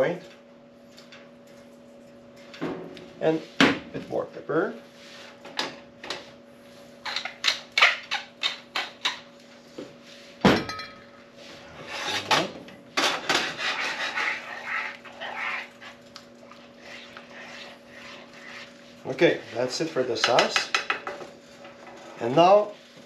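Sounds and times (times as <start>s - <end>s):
wooden spatula scraping a frying pan: 13.0s - 15.8s, 16.8s - 20.4s.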